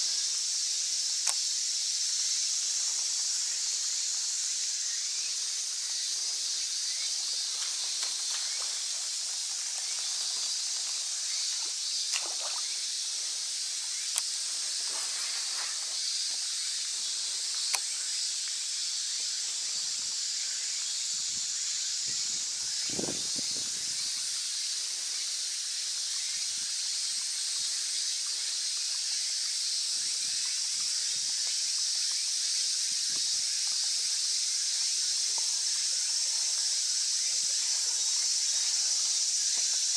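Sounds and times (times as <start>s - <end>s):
insects droning: 0.0s - 39.9s
soft splashing: 11.5s - 12.8s.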